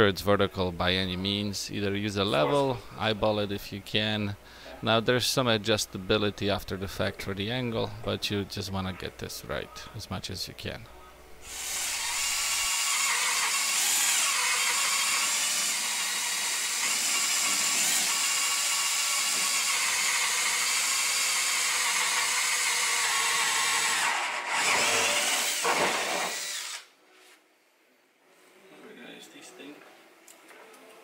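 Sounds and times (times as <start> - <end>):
cordless drill boring into drywall: 11.4 - 26.9.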